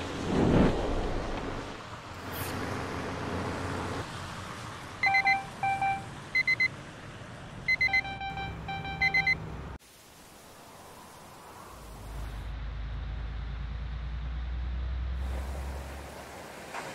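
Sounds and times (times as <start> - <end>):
electronic warning beeps: 5.0 - 6.7, 7.7 - 9.4
low vehicle hum: 11.7 - 16.8.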